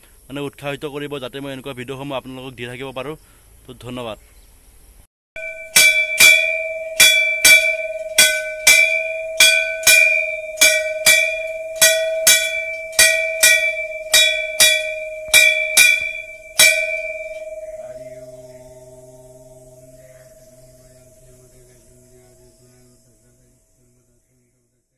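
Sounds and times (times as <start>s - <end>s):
temple bell ringing: 5.4s - 24.1s.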